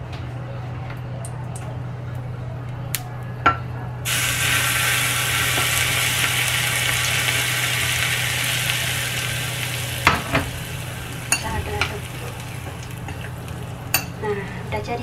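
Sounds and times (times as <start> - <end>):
steady low hum: 0.0 - 15.0
hot oil sizzling: 4.1 - 15.0.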